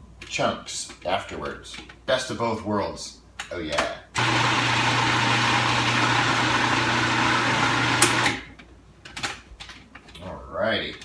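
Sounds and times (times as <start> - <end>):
blender click: 4.2 - 8.4
blender motor running: 4.2 - 8.4.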